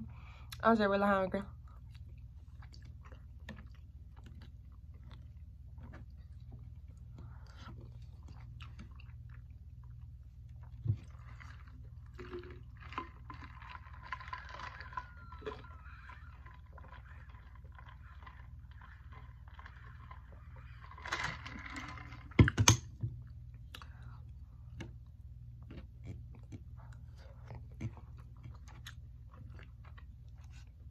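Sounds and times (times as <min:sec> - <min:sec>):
person chewing food: 0:01.6 - 0:21.0, 0:23.1 - 0:30.9
person swallowing drink: 0:10.7 - 0:19.2.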